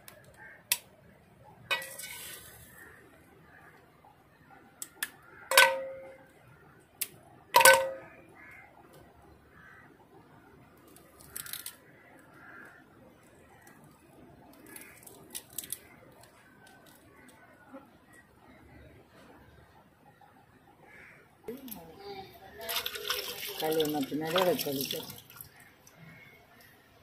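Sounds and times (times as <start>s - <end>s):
crab shells crackling: 10.8s - 11.8s, 14.5s - 17.3s.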